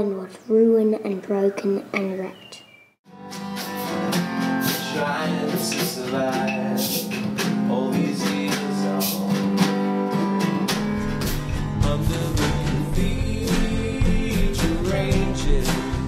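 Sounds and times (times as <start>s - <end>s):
acoustic guitar strumming: 3.1s - 16.0s
deep low notes: 10.9s - 16.0s.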